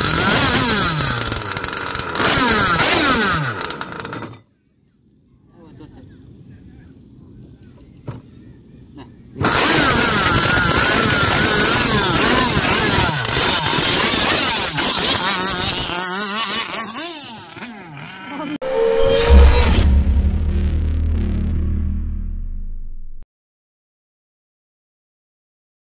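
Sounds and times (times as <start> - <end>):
rc boat engine running: 0.0 - 4.4, 9.4 - 18.6
music: 18.7 - 22.6.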